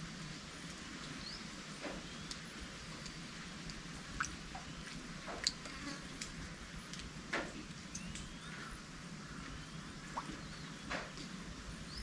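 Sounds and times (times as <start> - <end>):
light rain hiss: 0.0 - 12.0
raindrops ticking: 1.8 - 8.4.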